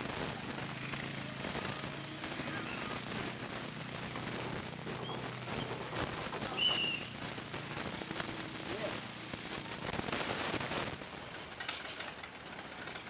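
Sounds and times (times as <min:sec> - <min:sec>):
atv engine running: 0:00.0 - 0:13.0
dense crackling hiss: 0:00.0 - 0:13.0.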